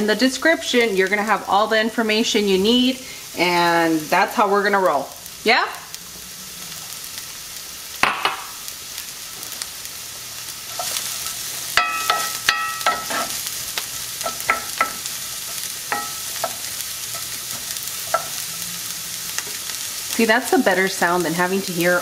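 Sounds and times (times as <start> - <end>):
onions sizzling in oil: 0.0 - 22.0
wooden spoon knocking pan: 11.8 - 13.3, 14.2 - 15.0.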